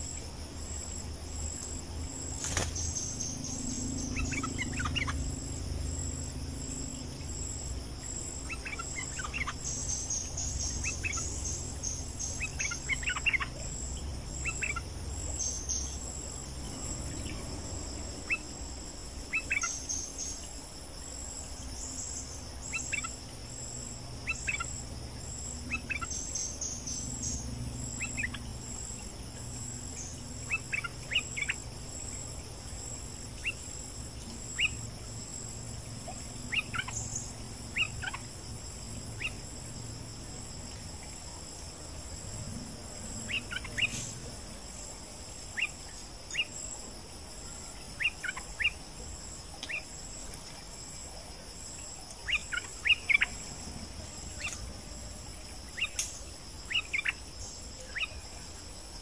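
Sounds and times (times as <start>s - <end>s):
insects buzzing: 0.0s - 59.0s
bulbul calls: 2.4s - 5.3s, 8.4s - 13.7s, 14.4s - 16.0s, 19.3s - 20.4s, 22.7s - 23.2s, 24.2s - 24.8s, 25.7s - 27.4s, 28.0s - 28.4s, 30.0s - 31.6s, 36.5s - 38.3s, 43.3s - 44.2s, 48.0s - 48.8s, 49.6s - 49.9s, 52.2s - 53.4s, 55.7s - 56.1s, 56.7s - 58.2s.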